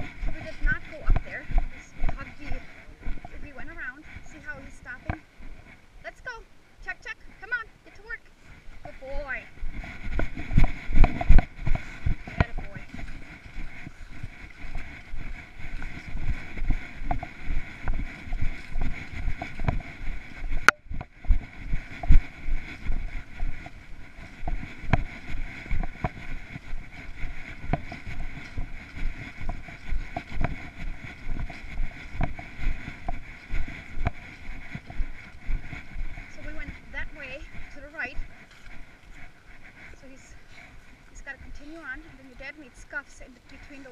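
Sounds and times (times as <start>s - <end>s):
footsteps on dry grass and leaves: 0.0s - 6.0s, 8.3s - 43.9s
wind on microphone: 0.0s - 43.9s.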